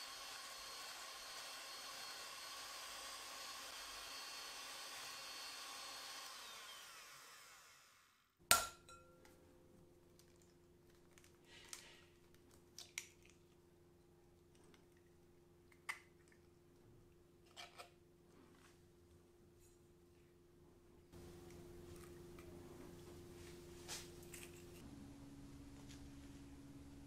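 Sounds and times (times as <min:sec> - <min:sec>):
electric hand mixer whirring: 0:00.0 - 0:08.2.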